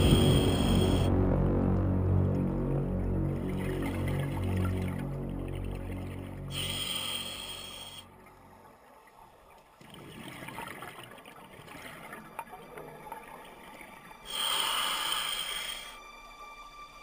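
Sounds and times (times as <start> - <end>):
regulator inhalation hiss: 0.0 - 1.1, 6.5 - 8.1, 14.3 - 16.1
exhaled air bubbling underwater: 0.0 - 1.9, 2.7 - 15.9.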